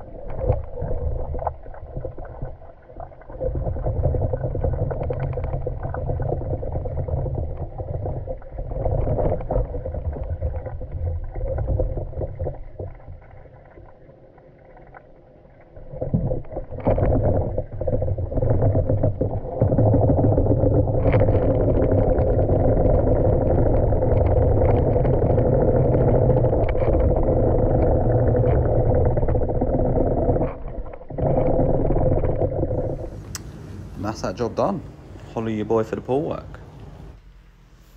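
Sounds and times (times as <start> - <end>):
muffled underwater rumble and gurgle: 0.0 - 37.9
knocks underwater: 15.9 - 33.2.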